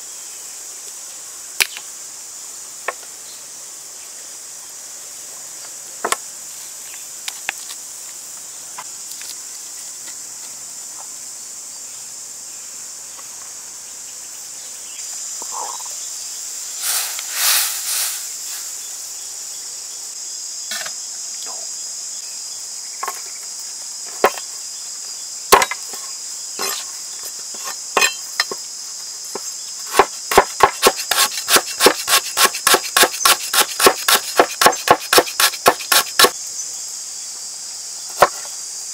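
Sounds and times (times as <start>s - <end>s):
insects droning: 0.0s - 38.9s
cleaver chopping on wooden board: 25.5s - 25.8s, 29.9s - 36.3s.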